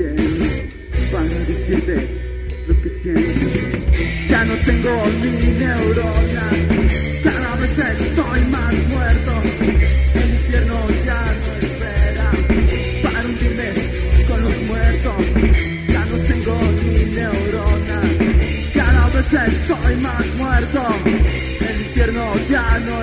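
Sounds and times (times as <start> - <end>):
distorted electric guitars and bass: 0.0 - 23.0
pounding drum kit: 0.0 - 23.0
punk rock music: 0.0 - 23.0
wavering lead guitar line: 0.0 - 23.0.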